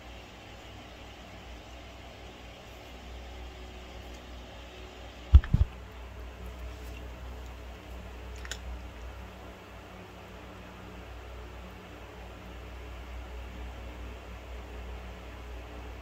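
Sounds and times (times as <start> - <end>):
cat crunching dry kibble: 8.3 - 8.7.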